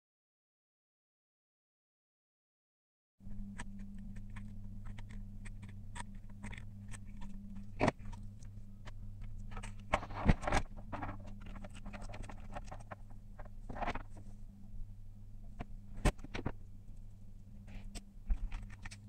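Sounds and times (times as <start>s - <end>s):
low hum: 3.2s - 19.0s
electronics parts handled on desk: 3.4s - 14.4s, 15.6s - 16.6s, 17.7s - 19.0s.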